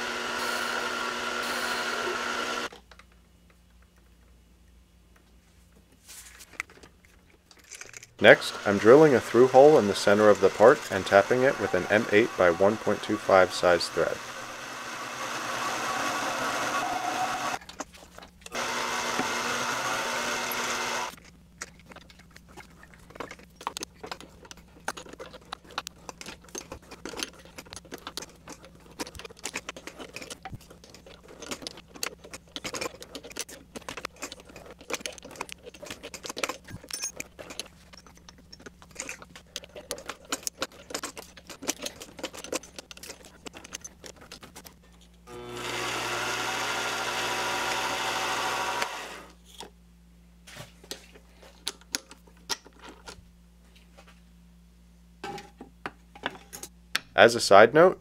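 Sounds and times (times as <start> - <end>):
lathe motor hum: 0.0 - 2.7, 8.2 - 17.6, 18.5 - 21.1, 45.3 - 49.4
loud steady machine sound: 0.0 - 2.7, 8.3 - 17.6, 18.6 - 21.1, 45.3 - 49.3.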